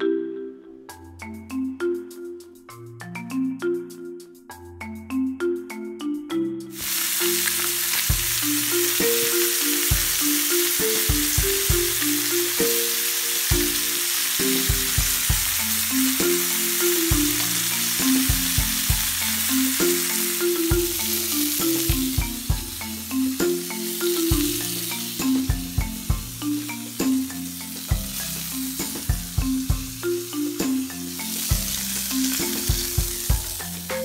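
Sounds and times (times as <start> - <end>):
background music: 0.0 - 34.0
chicken sizzling in oil: 6.7 - 33.8.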